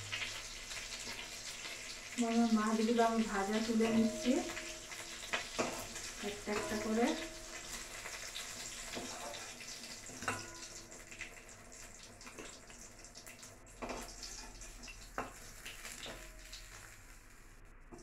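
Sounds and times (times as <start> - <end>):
fish sizzling in hot oil: 0.0 - 17.6.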